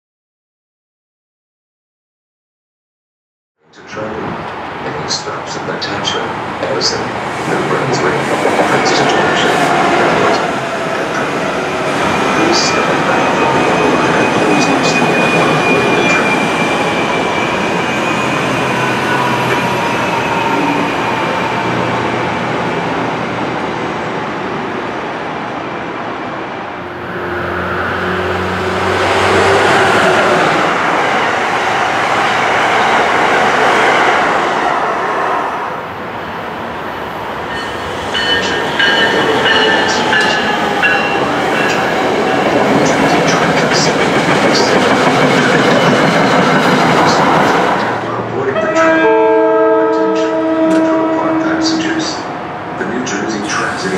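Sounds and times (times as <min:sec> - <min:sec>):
train wheels rumbling on rails: 0:03.9 - 0:23.4, 0:37.5 - 0:48.5.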